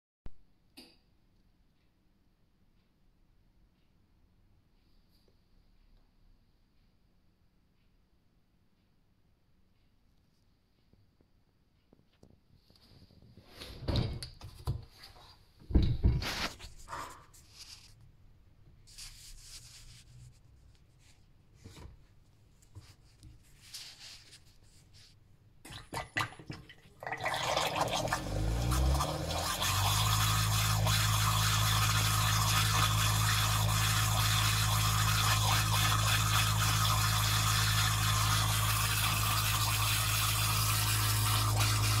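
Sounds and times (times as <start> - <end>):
water churning: 25.7 - 42.0
dishwasher pump motor humming: 27.0 - 42.0.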